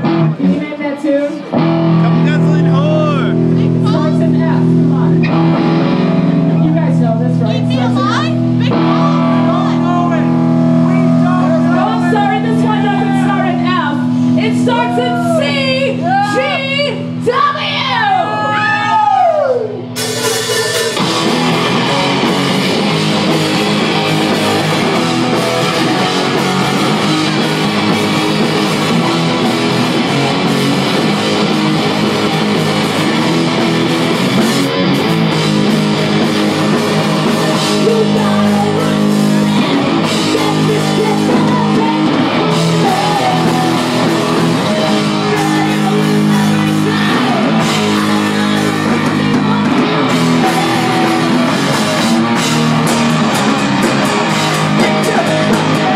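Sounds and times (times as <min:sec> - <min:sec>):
electric guitar: 0:00.0 - 0:55.9
rock band playing: 0:00.0 - 0:55.9
drum kit: 0:18.6 - 0:55.9.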